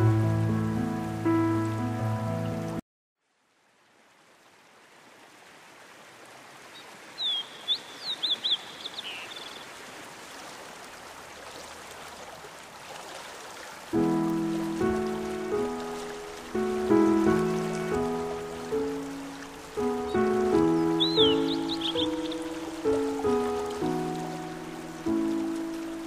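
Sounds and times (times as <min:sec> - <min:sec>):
rushing stream water: 0:00.0 - 0:26.0
small bird chirping: 0:07.2 - 0:09.7, 0:20.0 - 0:23.0.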